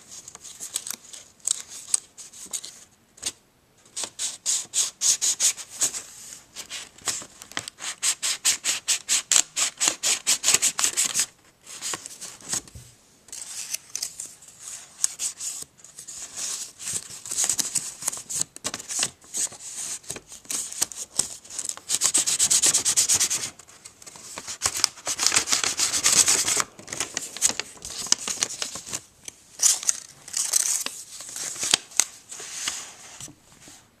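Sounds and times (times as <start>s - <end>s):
paper rustling: 10.4s - 33.8s.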